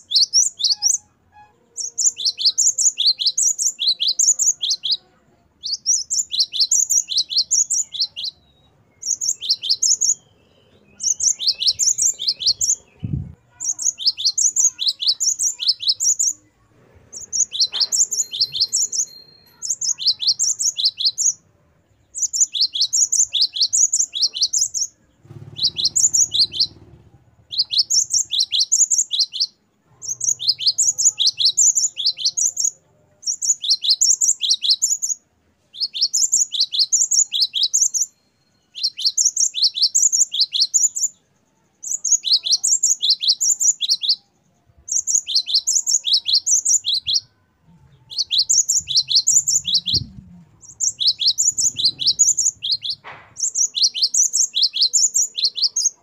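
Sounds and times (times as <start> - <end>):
bird singing ringing song: 0.0 - 56.0.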